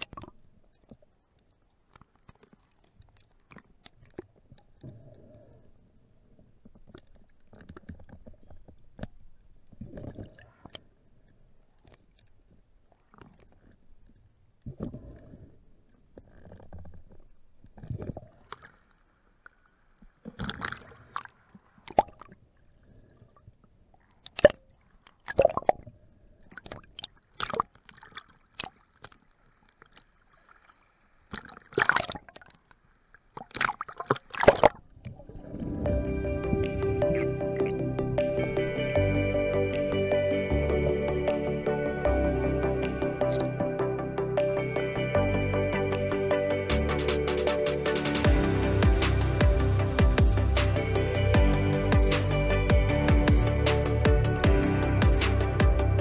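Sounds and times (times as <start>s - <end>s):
water splashing and sloshing: 0.0s - 39.0s.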